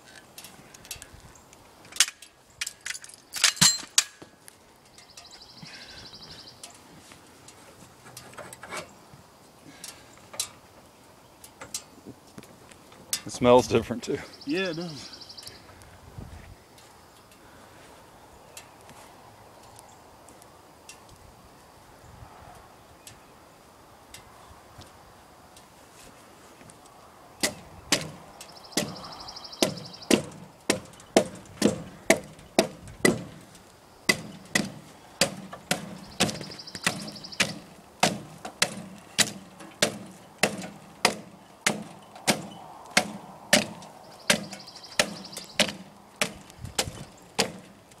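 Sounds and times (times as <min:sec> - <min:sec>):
hatchet chopping wood: 0:27.4 - 0:28.2, 0:28.8 - 0:29.0, 0:29.6 - 0:33.4, 0:34.1 - 0:47.7.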